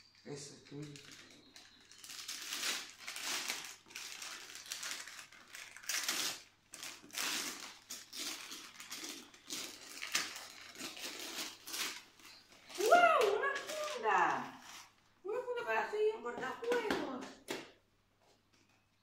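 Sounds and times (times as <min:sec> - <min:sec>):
wrapping paper tearing and crumpling: 0:00.6 - 0:15.0.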